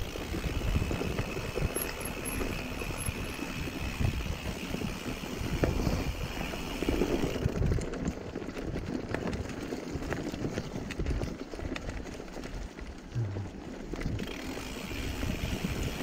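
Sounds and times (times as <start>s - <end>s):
bike knocking and rattling: 0.0s - 16.0s
low rumble: 13.1s - 14.1s.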